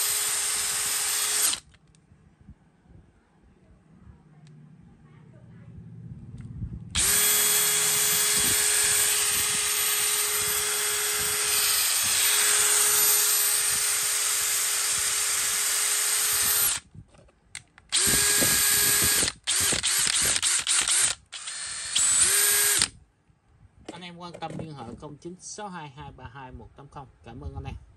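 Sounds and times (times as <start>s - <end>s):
cordless drill running: 0.0s - 1.8s, 6.9s - 16.8s, 17.9s - 22.9s.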